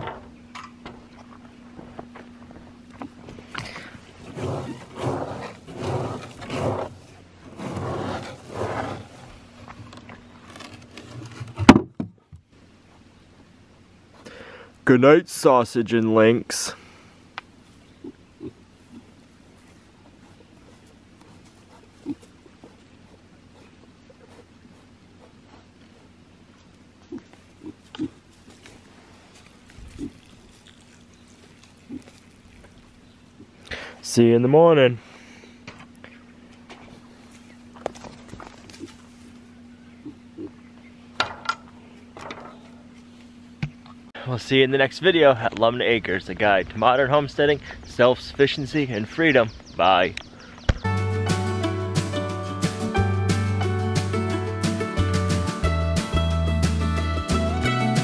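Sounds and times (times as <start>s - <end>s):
hand raking through feed pellets: 4.2s - 9.5s
piglets grunting: 18.0s - 19.2s, 21.7s - 24.5s, 27.0s - 28.2s, 40.0s - 40.6s.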